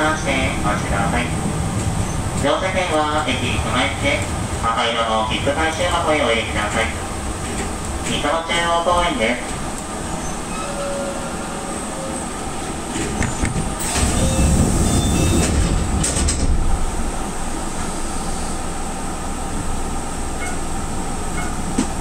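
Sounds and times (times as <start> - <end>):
train equipment humming: 0.0 - 22.0.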